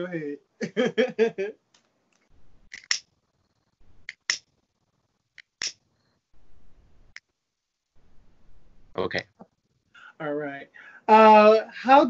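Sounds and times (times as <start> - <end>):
faint low noise: 0.0 - 12.0
sharp clicks: 1.7 - 3.1, 4.0 - 4.5.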